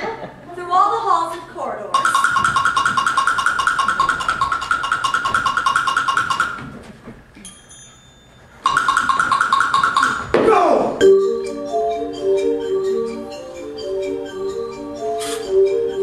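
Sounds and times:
rapid high-pitched percussion strokes: 0:01.9 - 0:06.7, 0:08.6 - 0:10.4, 0:11.0 - 0:16.0
faint bell-like ping: 0:07.4 - 0:08.4.

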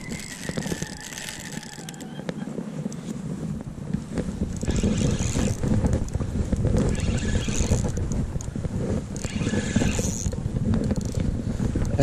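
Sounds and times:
fishing reel hissing: 0:00.0 - 0:02.2, 0:04.6 - 0:05.6, 0:06.8 - 0:08.0, 0:09.2 - 0:10.3
rumbling camera handling noise: 0:00.0 - 0:12.0.

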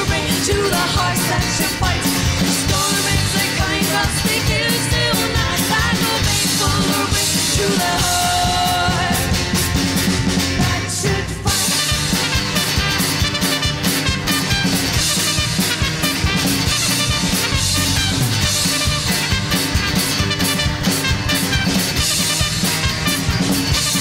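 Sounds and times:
women singing: 0:00.0 - 0:09.4, 0:10.6 - 0:11.7
bass guitar: 0:00.0 - 0:24.0
drum kit: 0:00.0 - 0:24.0
guitar: 0:00.0 - 0:24.0.

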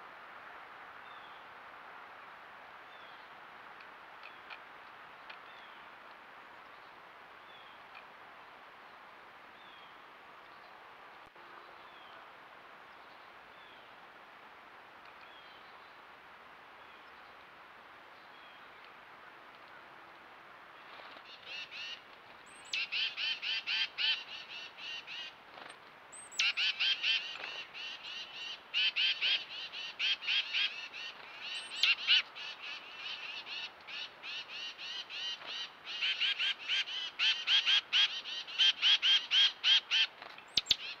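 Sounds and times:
chickadees calling: 0:21.2 - 0:25.4, 0:26.1 - 0:41.0.

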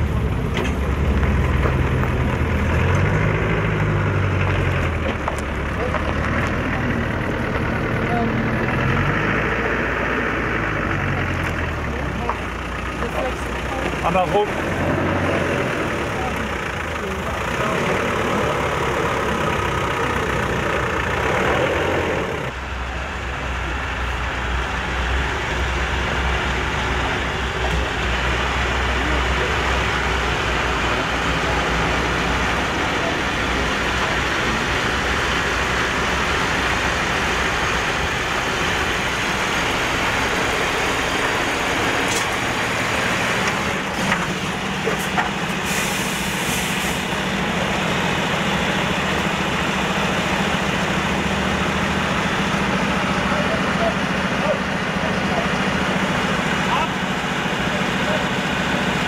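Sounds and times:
heavy vehicle engines running: 0:00.0 - 0:59.0.

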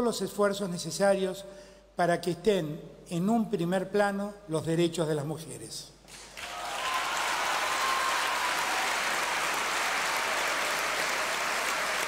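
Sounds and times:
large crowd applauding: 0:06.1 - 0:12.0.

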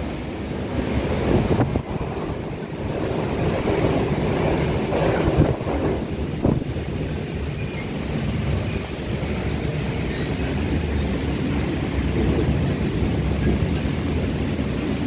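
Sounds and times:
train rumbling along track: 0:00.0 - 0:15.0.

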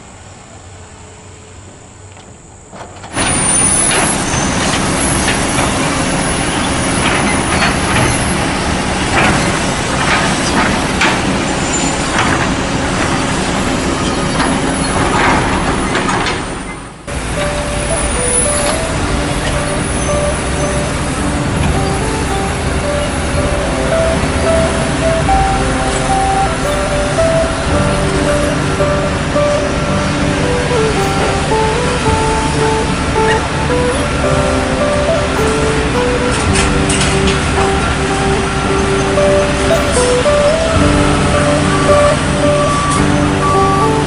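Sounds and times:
heavy construction machinery: 0:00.0 - 0:44.0
metallic knocks and clanks: 0:03.0 - 0:29.6
machine drone: 0:03.2 - 0:44.0
background music: 0:17.1 - 0:44.0.

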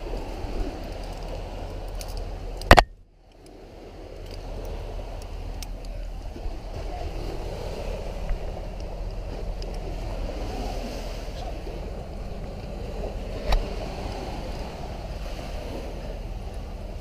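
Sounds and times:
wind and surf noise: 0:00.0 - 0:17.0.

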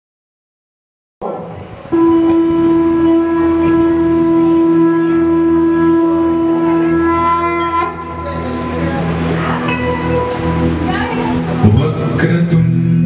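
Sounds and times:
low musical drone: 0:01.2 - 0:13.0
conch shell blown: 0:01.4 - 0:10.9.

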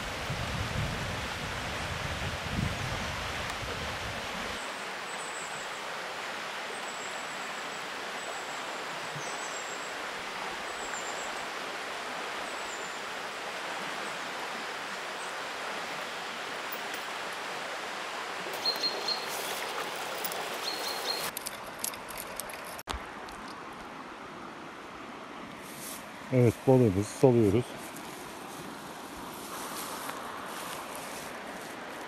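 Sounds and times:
stream water rushing: 0:00.0 - 0:32.0
high bird chirps: 0:18.6 - 0:19.6, 0:20.6 - 0:21.3.

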